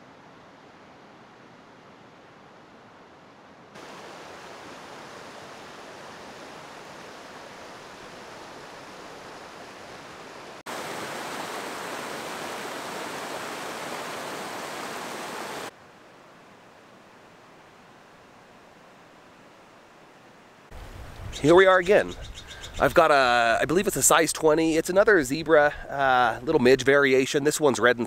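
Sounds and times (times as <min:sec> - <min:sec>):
stream rushing over rocks: 0:03.8 - 0:15.8.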